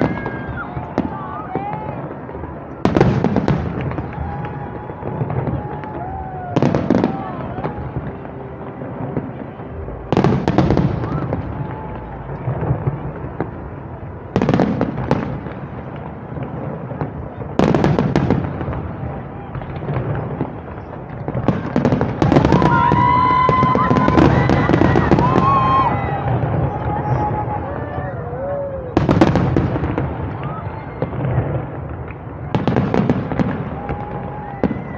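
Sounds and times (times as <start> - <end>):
fireworks bursting and crackling: 0.0 - 34.9.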